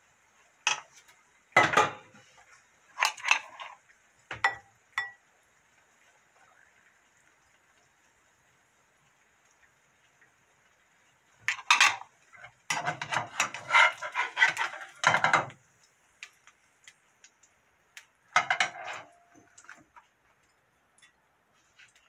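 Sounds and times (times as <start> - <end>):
spatula scraping frying pan: 0.7 - 3.9, 11.5 - 15.6, 18.4 - 19.4.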